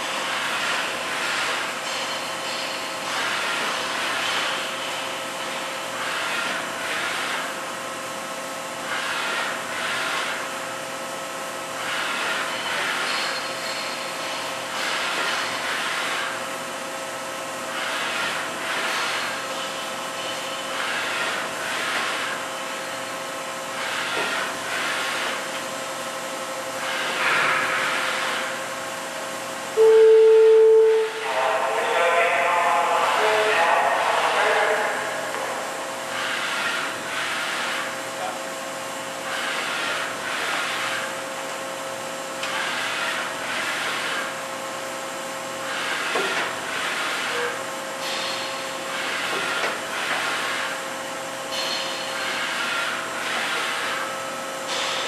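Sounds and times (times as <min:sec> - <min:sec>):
machining center whine: 0:00.0 - 0:55.0
swells of machine noise: 0:00.0 - 0:55.0
loud steady tone: 0:29.7 - 0:36.2, 0:47.2 - 0:47.6.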